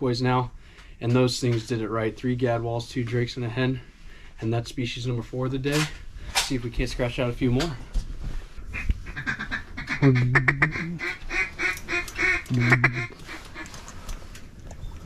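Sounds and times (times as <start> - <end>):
duck quacking: 8.7 - 13.7.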